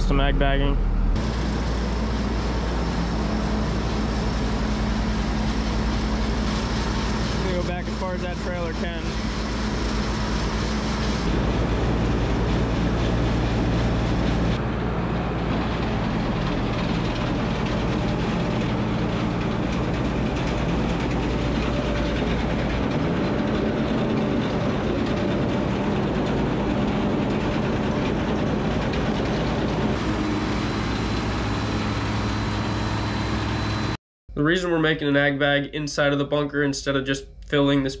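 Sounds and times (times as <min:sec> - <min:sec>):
conveyors clattering: 0:11.2 - 0:31.6.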